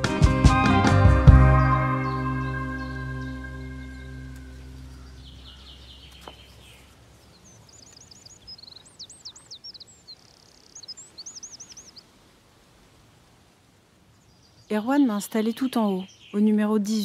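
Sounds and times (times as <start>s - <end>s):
background music: 0.0s - 5.0s
small birds singing: 1.3s - 12.2s, 14.0s - 17.0s.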